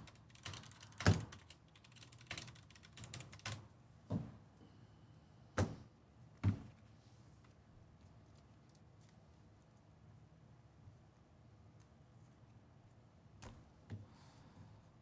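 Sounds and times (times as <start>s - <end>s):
keys and objects clicking on desk: 0.0s - 3.6s.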